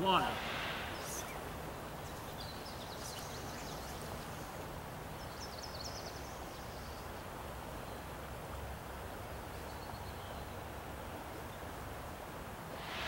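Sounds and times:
low outdoor background noise: 0.0s - 13.0s
small bird chirping: 0.8s - 4.6s.

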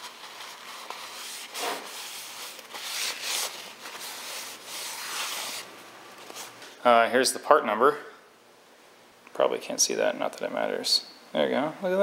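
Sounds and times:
paper towel wiping metal: 0.0s - 5.7s.

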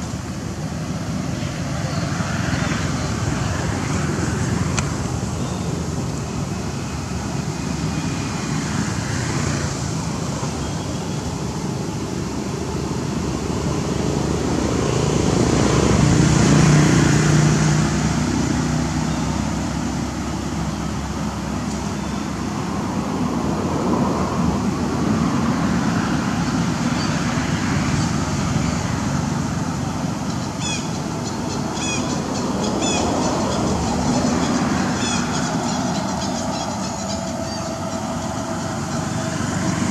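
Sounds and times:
road traffic rumble: 0.0s - 39.9s
vehicle passing: 12.5s - 39.9s.

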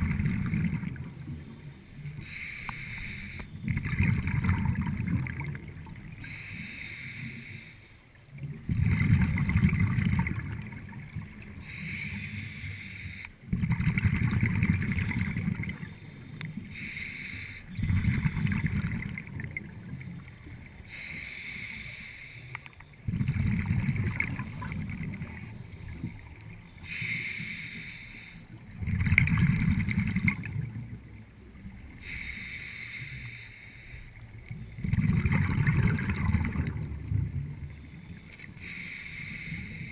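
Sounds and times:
bubbling exhaust bubbles: 0.0s - 1.5s, 3.6s - 6.2s, 8.4s - 11.6s, 13.4s - 16.0s, 17.8s - 20.8s, 23.0s - 26.7s, 28.6s - 32.0s, 34.6s - 37.8s
hissing regulator inhale: 1.6s - 3.5s, 6.2s - 8.1s, 11.6s - 13.4s, 15.7s - 17.9s, 20.8s - 22.8s, 25.5s - 28.6s, 32.0s - 34.3s, 37.7s - 39.9s.

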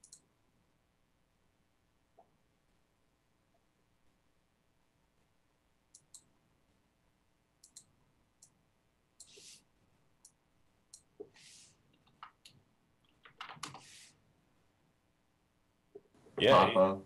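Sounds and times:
mouse and keyboard clicks: 0.0s - 0.2s, 7.6s - 8.6s.

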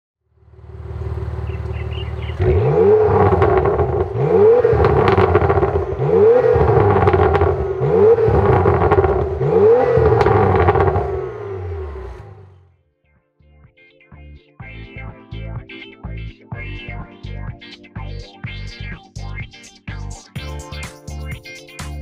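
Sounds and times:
car engine idling: 0.3s - 12.7s
engine revving: 0.4s - 12.7s.

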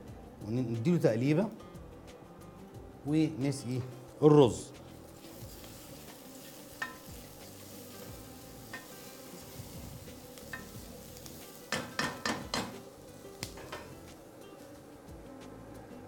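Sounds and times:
rice sizzling: 4.8s - 15.0s
spatula stirring rice in pan: 4.9s - 14.1s
spatula knocking against pan: 11.7s - 12.8s, 13.4s - 14.0s.

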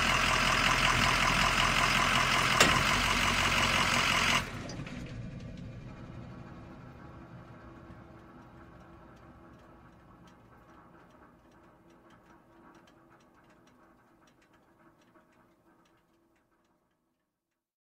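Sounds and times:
diesel truck engine running: 0.0s - 13.4s.

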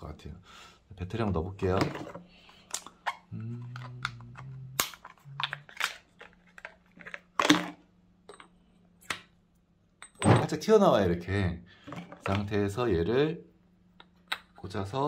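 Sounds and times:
batteries being handled: 1.9s - 7.8s
short low hum: 3.3s - 5.6s.

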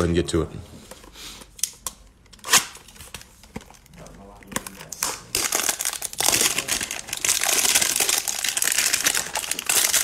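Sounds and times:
plastic wrapping crinkling: 2.5s - 10.0s.

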